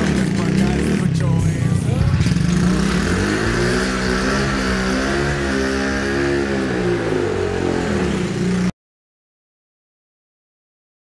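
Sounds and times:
quad bike engine revving: 0:00.0 - 0:08.7.

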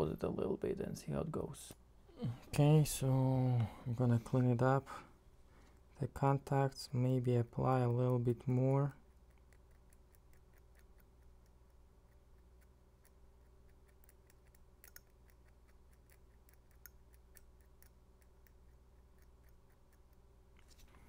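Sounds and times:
faint electrical hum: 0:00.0 - 0:21.0
faint irregular ticks: 0:06.9 - 0:21.0.

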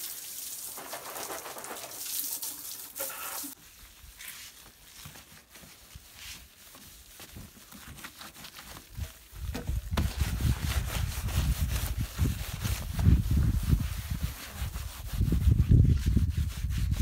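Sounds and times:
hose water spraying: 0:00.0 - 0:03.6.

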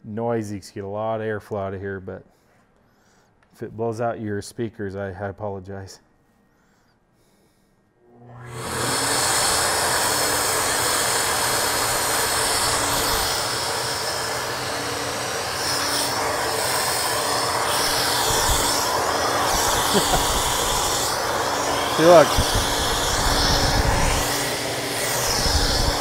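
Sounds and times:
steady fan hum: 0:08.2 - 0:26.0
loud rush of air: 0:08.8 - 0:26.0.

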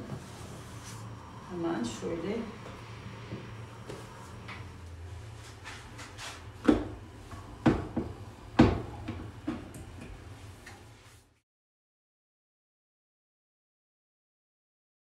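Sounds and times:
low hum: 0:00.0 - 0:11.3.

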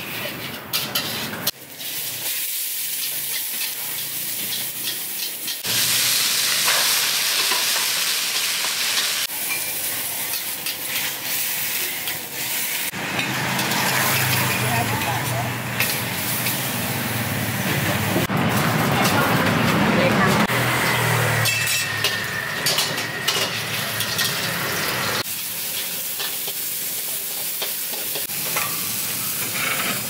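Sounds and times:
metal utensils scraping a pan: 0:00.0 - 0:05.7, 0:06.6 - 0:16.6, 0:21.2 - 0:25.1, 0:25.7 - 0:30.0
greens sizzling in a wok: 0:01.0 - 0:18.8, 0:20.7 - 0:30.0.

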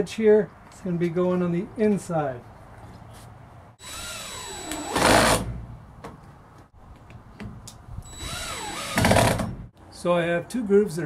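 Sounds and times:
cordless drill driving screws: 0:03.8 - 0:05.4, 0:08.1 - 0:09.5.

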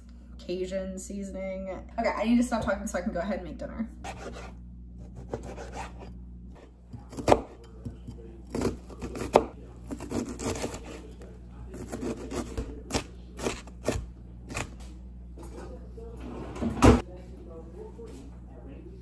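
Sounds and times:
knife chopping on plastic board: 0:04.1 - 0:04.5, 0:05.1 - 0:06.0, 0:07.0 - 0:07.9, 0:08.5 - 0:11.0, 0:11.7 - 0:14.8.

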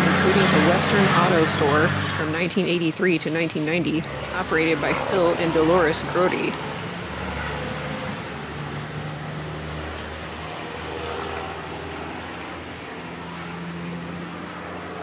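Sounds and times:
road noise: 0:00.0 - 0:15.0
vehicle engine humming: 0:00.0 - 0:15.0.

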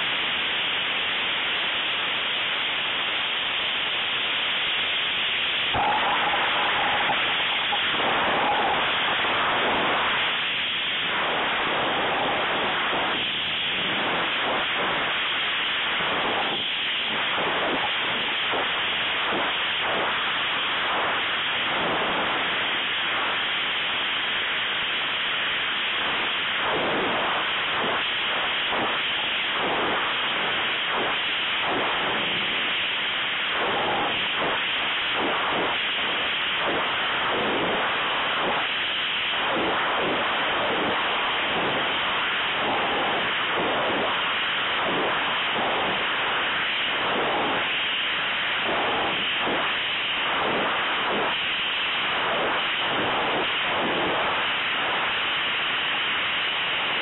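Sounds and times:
rushing wind on microphone: 0:05.7 - 0:20.3, 0:26.6 - 0:55.2.

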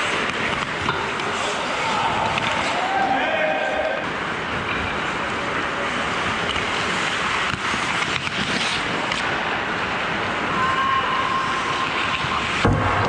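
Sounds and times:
hockey sticks and puck clicking: 0:00.0 - 0:02.8, 0:06.3 - 0:09.3
skates hissing on ice: 0:05.4 - 0:10.0.

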